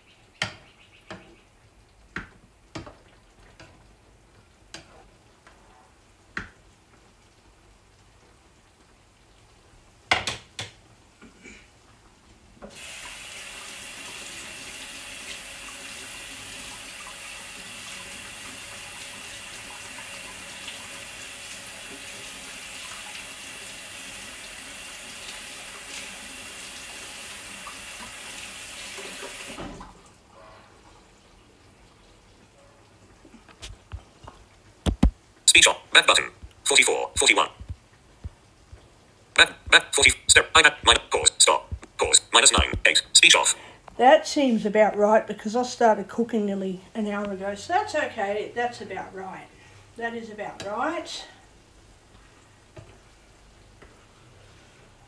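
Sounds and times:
kitchen clicks and knocks: 10.1 - 10.8
tap running into sink: 34.9 - 35.2.

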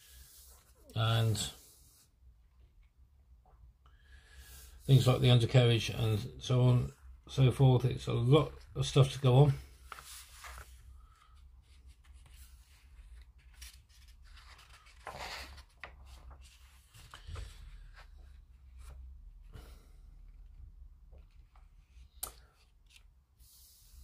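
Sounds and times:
paper page rustling: 9.7 - 18.1.

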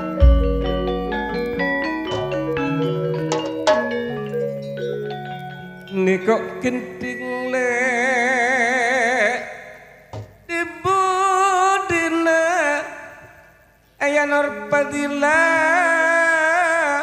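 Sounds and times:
gamelan notes ringing: 0.0 - 6.3
person singing with vibrato: 5.5 - 17.0.

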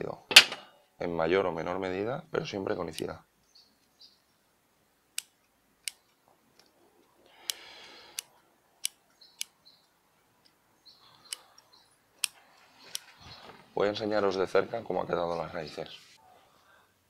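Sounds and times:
rustle of soil and roots: 12.3 - 14.1.

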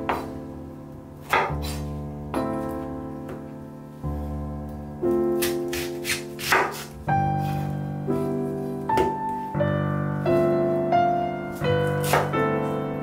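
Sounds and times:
piano music: 0.0 - 13.0
knife cutting onion on board: 1.2 - 1.9, 5.4 - 7.6, 11.8 - 12.3.

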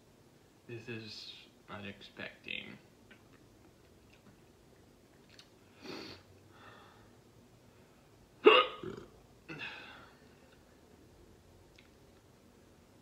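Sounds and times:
man hiccuping: 8.4 - 9.8.

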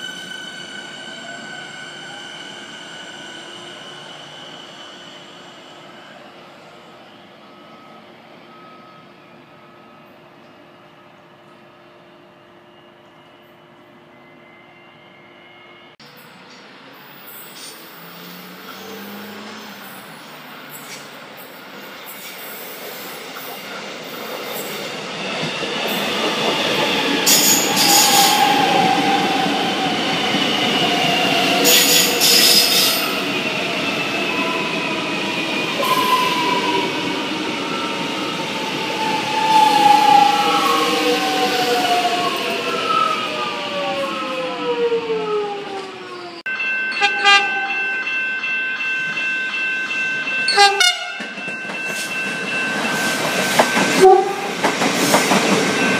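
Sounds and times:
train passing: 12.8 - 55.9
level crossing bells ringing: 46.5 - 54.2.

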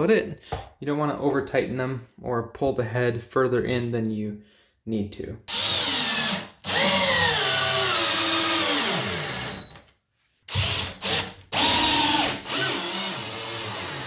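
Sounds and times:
power drill driving screw: 5.5 - 9.8, 10.5 - 14.0.

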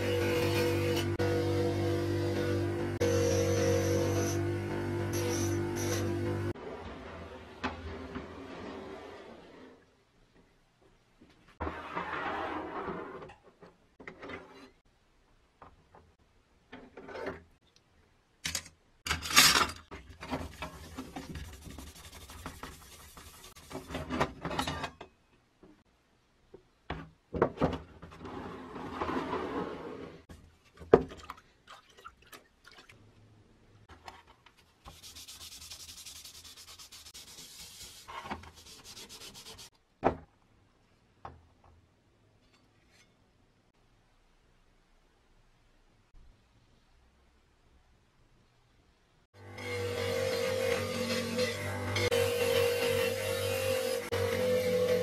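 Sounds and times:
scouring pad scrubbing metal: 20.4 - 24.0, 34.9 - 39.7.

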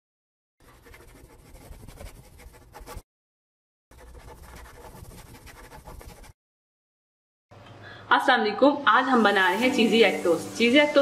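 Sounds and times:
felt-tip pen scratching: 0.6 - 3.0, 3.9 - 6.4.

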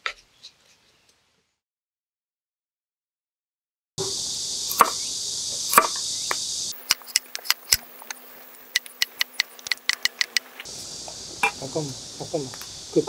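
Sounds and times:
knife chopping on wooden board: 4.0 - 5.0, 5.7 - 6.0
high insect drone: 4.0 - 13.0.

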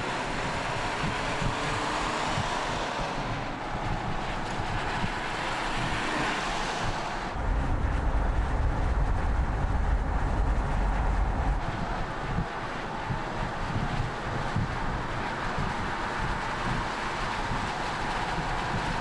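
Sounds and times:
tyre and wind noise: 0.0 - 19.0
deep low rumble: 7.2 - 14.0.

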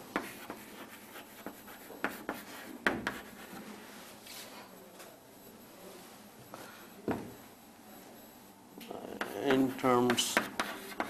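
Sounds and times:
pen scratching on a surface: 0.2 - 3.6, 9.2 - 11.0.

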